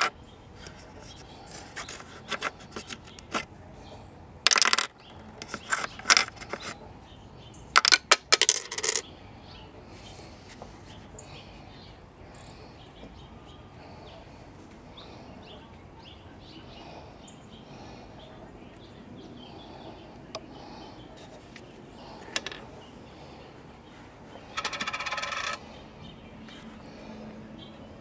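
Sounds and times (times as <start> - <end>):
coins clinking in coin holder: 4.5 - 6.8, 7.8 - 9.0, 24.6 - 25.6.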